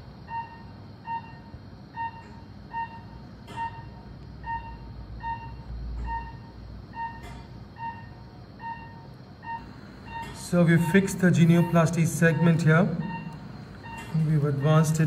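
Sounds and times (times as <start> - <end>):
patient monitor beeping: 0.0 - 15.0.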